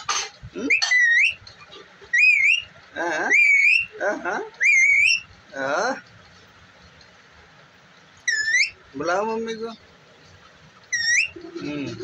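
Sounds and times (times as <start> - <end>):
parakeet chattering calls: 0.1 - 5.3, 8.2 - 9.0, 10.8 - 11.7
parakeet whistling: 0.7 - 1.4, 2.1 - 2.7, 3.3 - 4.0, 4.6 - 5.3, 8.2 - 8.8, 10.9 - 11.4.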